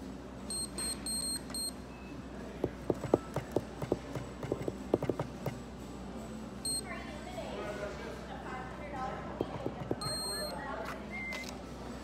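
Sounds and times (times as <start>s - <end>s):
card terminal beeping: 0.5s - 1.8s, 6.6s - 6.9s, 9.9s - 11.6s
fingers tapping on terminal: 2.6s - 5.6s, 9.4s - 10.5s.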